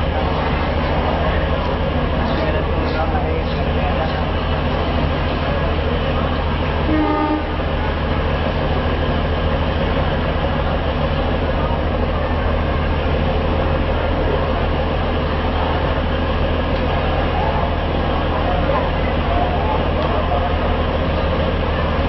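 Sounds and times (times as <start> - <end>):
diesel train engine idling: 0.0 - 22.0
train horn toot: 6.8 - 7.7.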